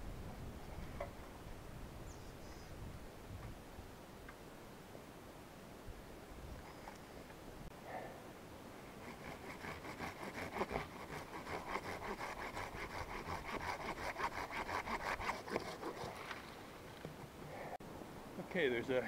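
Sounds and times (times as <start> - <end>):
hand saw rasping through wood: 8.9 - 16.4.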